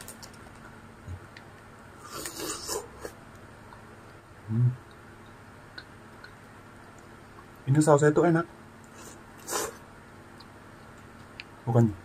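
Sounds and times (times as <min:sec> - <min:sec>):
low nasal hum: 0:01.9 - 0:06.8, 0:08.8 - 0:10.5.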